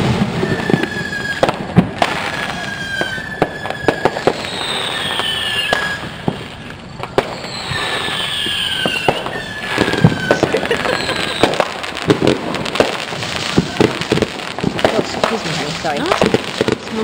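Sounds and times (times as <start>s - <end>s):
firework whistles falling in pitch: 0.0s - 16.7s
fireworks bangs and pops: 0.0s - 17.0s.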